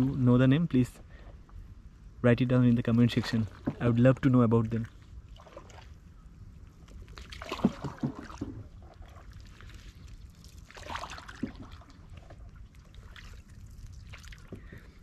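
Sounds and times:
hand splashing lake water: 0:07.1 - 0:14.5
water trickling: 0:07.1 - 0:15.0
knock on boat: 0:07.6 - 0:08.7.

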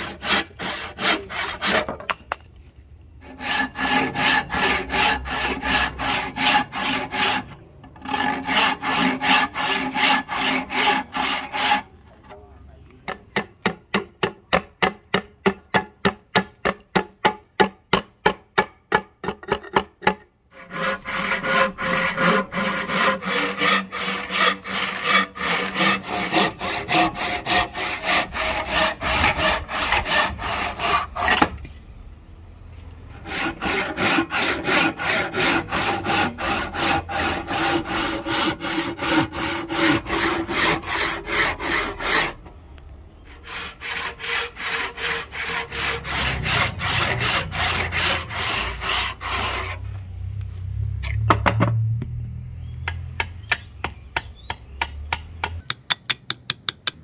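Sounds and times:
handsaw rasping through wood: 0:00.0 - 0:01.9, 0:03.2 - 0:11.9, 0:20.6 - 0:31.5, 0:33.1 - 0:42.4, 0:43.3 - 0:49.8.

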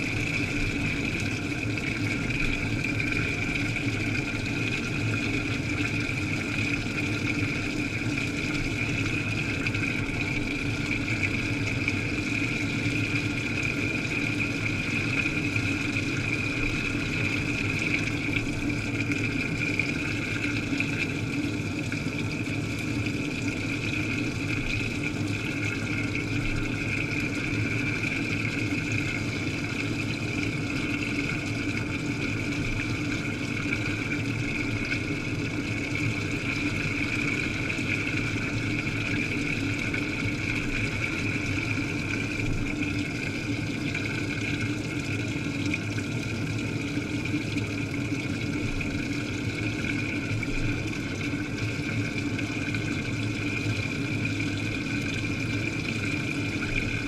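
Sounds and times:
washing machine hum: 0:00.0 - 0:57.0
water churning: 0:00.0 - 0:57.0.

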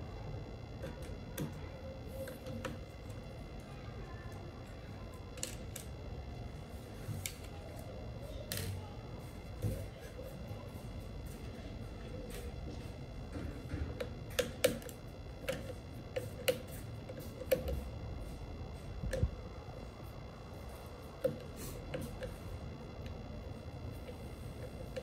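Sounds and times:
screwdriver clicking on plastic: 0:13.6 - 0:17.9.

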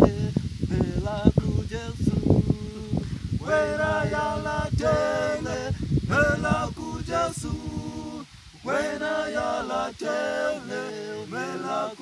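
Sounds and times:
low irregular rumble: 0:00.0 - 0:09.0
male a cappella group singing: 0:00.0 - 0:12.0.

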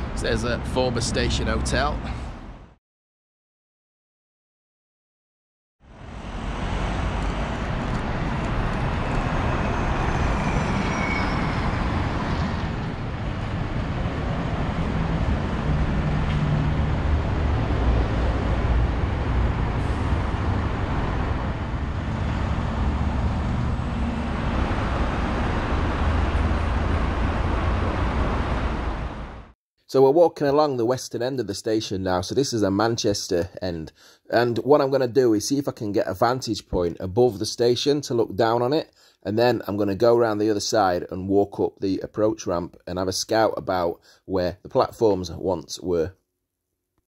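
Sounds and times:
road traffic rumble: 0:00.0 - 0:02.7, 0:05.8 - 0:29.6
faint high falling squeal: 0:09.1 - 0:12.8.

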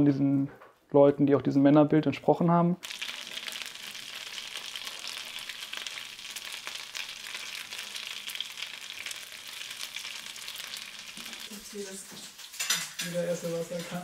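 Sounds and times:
food sizzling in a frying pan: 0:02.8 - 0:14.0.

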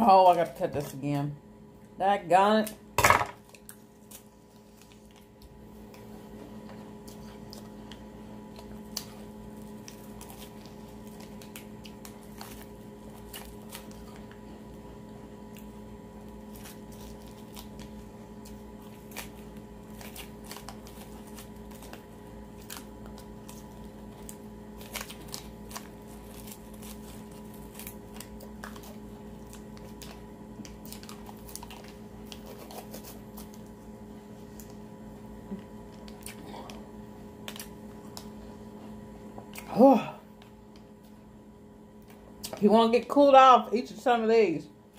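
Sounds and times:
steady low hum: 0:00.0 - 0:44.9
plastic sleeve crinkling: 0:15.4 - 0:34.8.

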